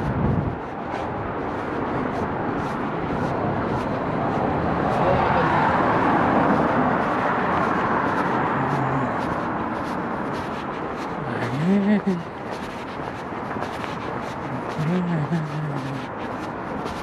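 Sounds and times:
vehicle engine and tyre noise: 0.0s - 17.0s.

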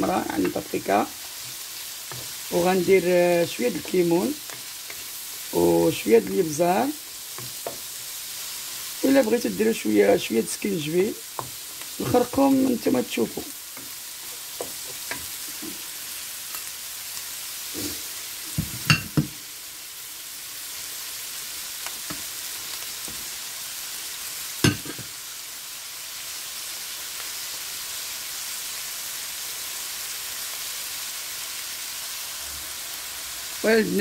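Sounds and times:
vegetables sizzling in a frying pan: 0.0s - 34.0s
wooden spatula knocking on pan: 18.5s - 19.4s.

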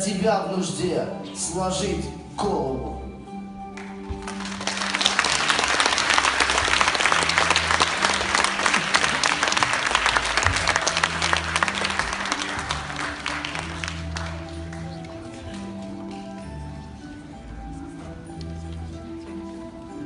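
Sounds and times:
quiet background music: 0.0s - 20.0s
audience applauding: 3.8s - 15.5s.

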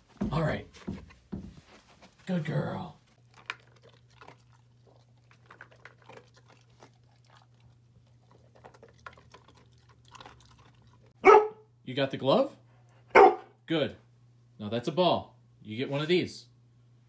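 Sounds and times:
dog crunching dry kibble: 3.2s - 11.2s.

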